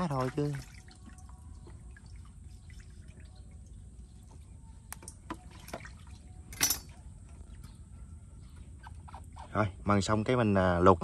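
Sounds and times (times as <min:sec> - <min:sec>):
water drips and splashes: 0:00.0 - 0:07.4.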